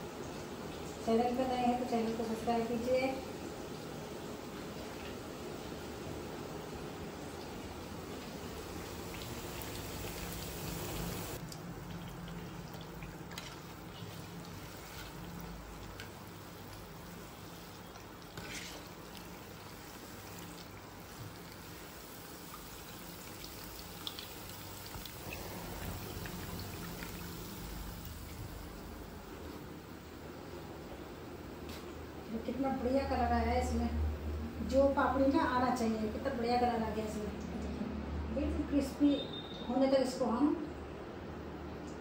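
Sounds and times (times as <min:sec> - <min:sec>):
food deep-frying in hot oil: 0:00.0 - 0:31.2.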